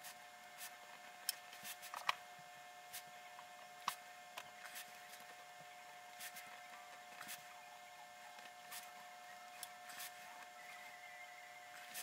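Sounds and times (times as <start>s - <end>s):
faint hum: 0.0s - 12.0s.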